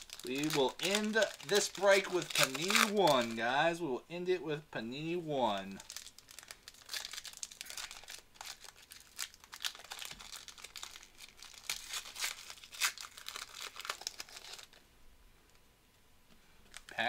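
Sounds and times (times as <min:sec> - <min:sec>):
foil wrapper crinkling and tearing: 0:00.0 - 0:03.4, 0:05.7 - 0:14.8, 0:16.7 - 0:17.0.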